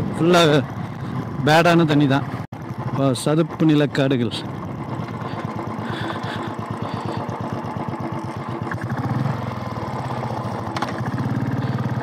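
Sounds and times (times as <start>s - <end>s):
motorcycle engine beat: 4.4s - 12.0s.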